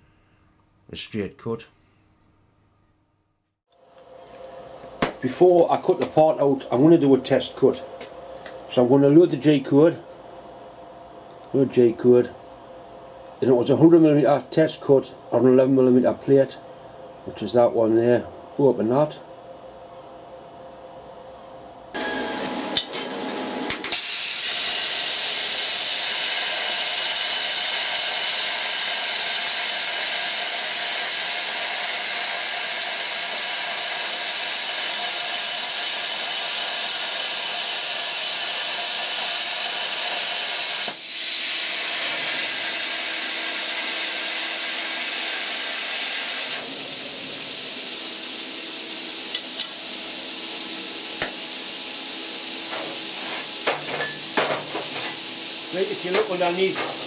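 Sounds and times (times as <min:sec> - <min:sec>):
steady low hum: 0:01.6 - 0:22.0, 0:50.1 - 0:57.0
plasma cutter hissing: 0:23.9 - 0:57.0.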